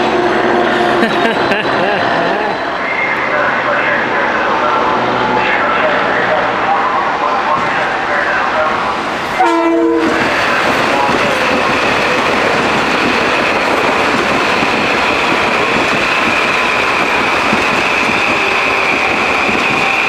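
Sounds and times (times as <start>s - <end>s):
train wheels rumbling on rail: 4.6s - 20.0s.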